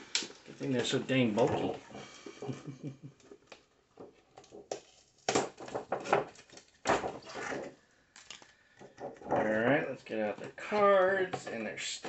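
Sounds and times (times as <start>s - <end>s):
plastic packaging crinkling: 4.3s - 10.1s.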